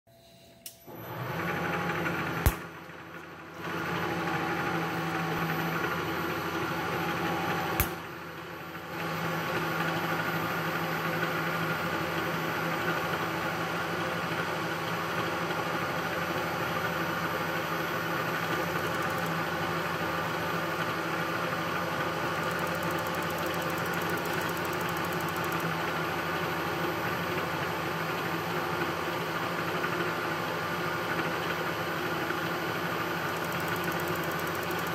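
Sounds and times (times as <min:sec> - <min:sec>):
milling machine spindle running: 0:16.3 - 0:28.3, 0:31.7 - 0:34.9
sharp clicks: 0:22.4 - 0:25.6, 0:33.4 - 0:34.9.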